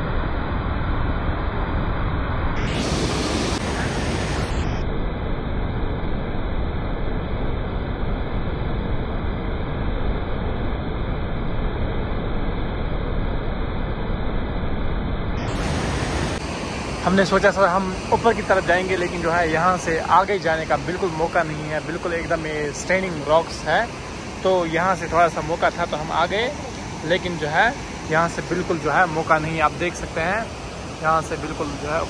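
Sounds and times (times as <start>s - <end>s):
waterfall roaring: 2.6s - 4.6s, 15.4s - 32.0s.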